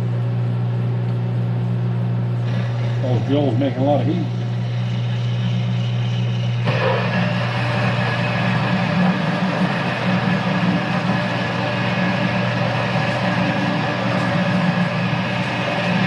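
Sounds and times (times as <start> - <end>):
lathe motor and gear hum: 0.0 - 16.0
drill scraping through steel: 4.0 - 16.0.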